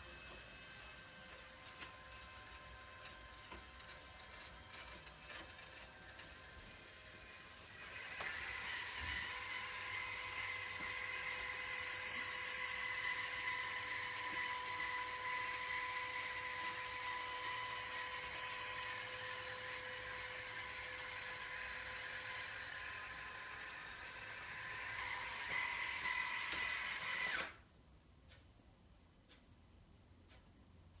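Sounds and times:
electric rake motor whining: 0.0 - 27.6.

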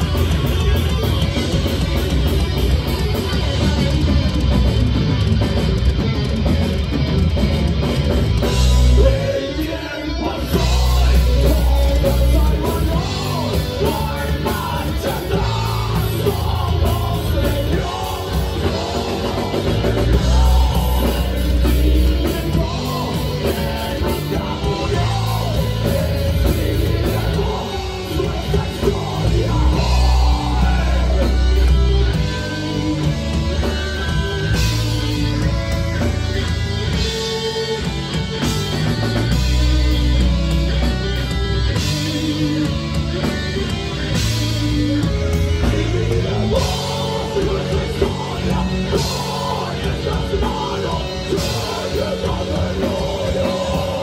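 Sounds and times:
heavy metal band playing: 0.0 - 54.0
person singing: 8.9 - 33.6, 44.6 - 54.0.

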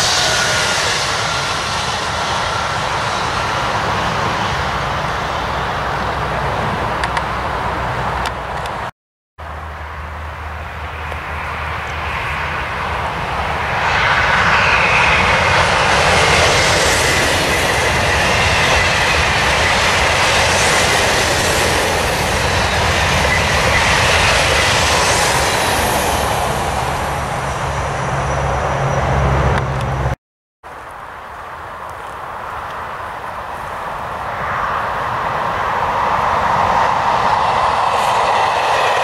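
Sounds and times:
high-speed train passing: 0.0 - 39.0
wind buffeting microphone: 11.1 - 30.1, 31.7 - 39.0.

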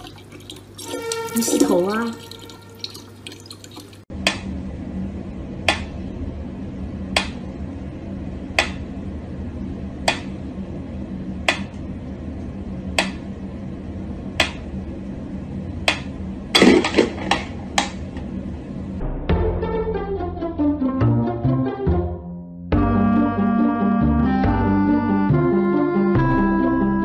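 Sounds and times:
low hum: 4.1 - 20.7.

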